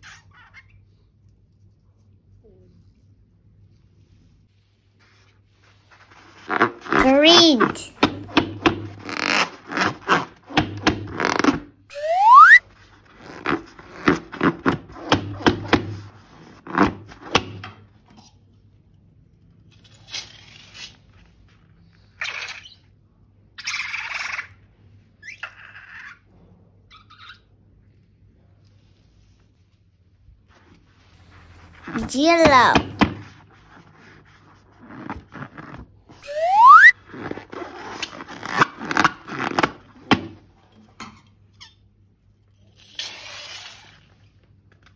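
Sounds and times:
rising squeak: 11.9s - 12.6s, 36.2s - 36.9s.

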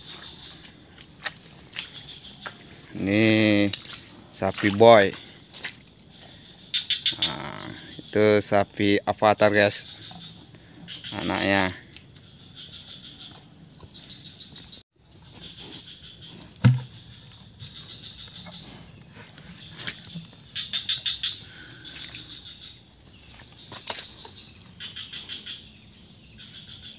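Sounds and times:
rapid insect chirps: 0.0s - 26.9s
dull thump: 16.6s - 16.9s.

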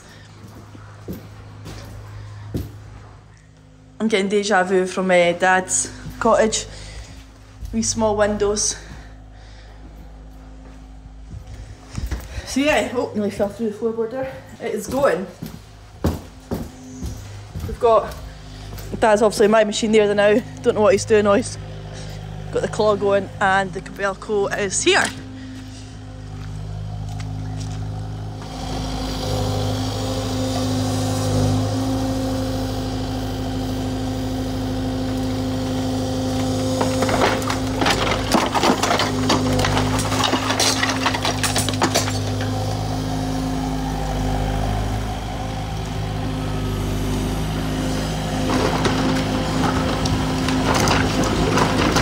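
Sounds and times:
diesel excavator engine running: 0.0s - 52.0s
wood cracking and splintering: 35.0s - 43.2s, 48.1s - 52.0s
glass breaking: 36.8s - 42.4s.

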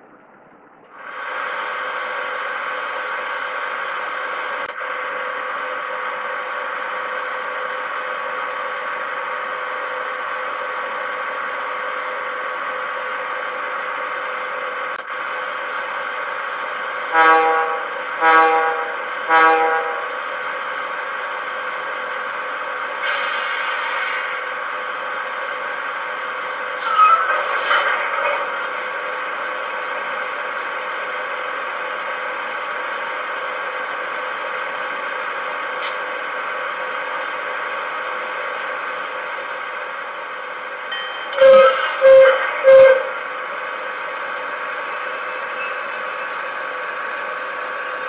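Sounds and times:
short horn toots: 17.2s - 20.1s, 41.4s - 43.2s.

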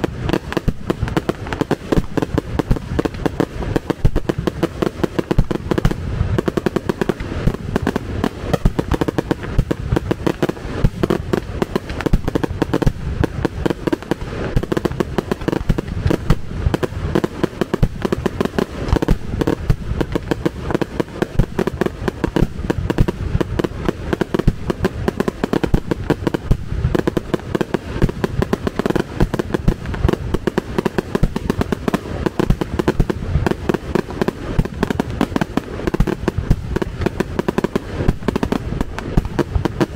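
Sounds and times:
fireworks rapid bangs: 0.0s - 39.9s.

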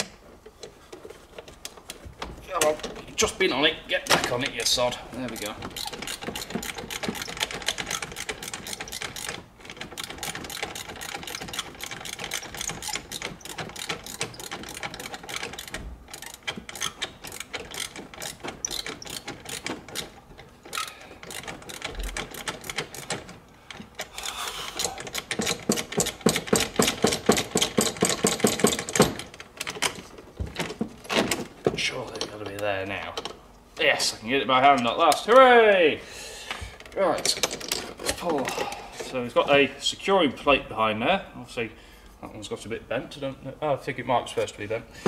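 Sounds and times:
ratchet wrench clicking: 5.3s - 23.2s, 24.0s - 29.0s.

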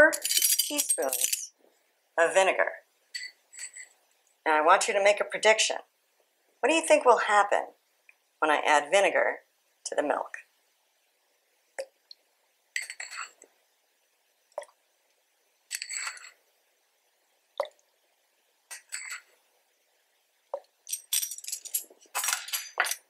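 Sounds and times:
metal spoon clinking on glass bowl: 0.1s - 1.4s, 3.2s - 3.9s, 12.8s - 13.3s, 15.7s - 16.3s, 18.7s - 19.2s.

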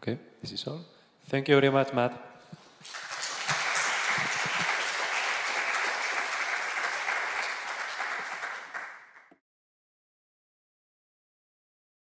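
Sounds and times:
audience applauding: 2.6s - 9.4s.

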